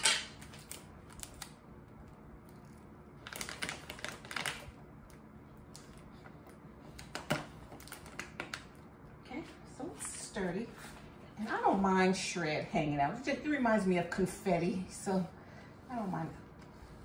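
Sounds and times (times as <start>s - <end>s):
packaging crinkling: 0.0s - 9.1s.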